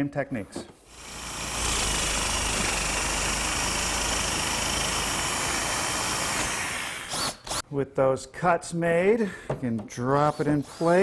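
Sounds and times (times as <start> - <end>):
jigsaw cutting metal: 0.9 - 7.6.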